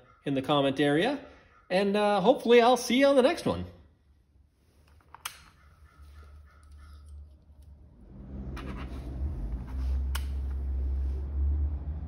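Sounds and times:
flasher relay clicking: 0:04.9 - 0:05.7, 0:10.1 - 0:10.4
toggle switch click: 0:05.2 - 0:05.5, 0:10.1 - 0:10.5
low hum: 0:06.2 - 0:12.0.

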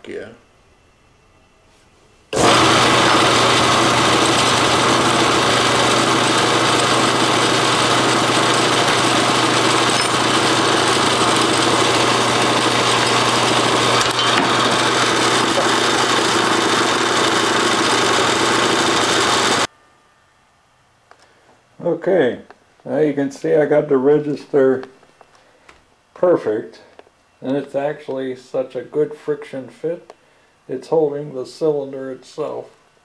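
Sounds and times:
sander motor running: 0:02.3 - 0:19.7.

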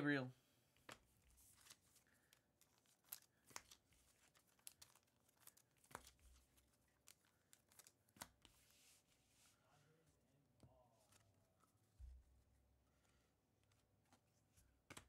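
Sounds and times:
soft rustle: 0:00.9 - 0:14.8
wrapper crinkling: 0:01.5 - 0:08.4
cards clicking: 0:02.6 - 0:08.6.

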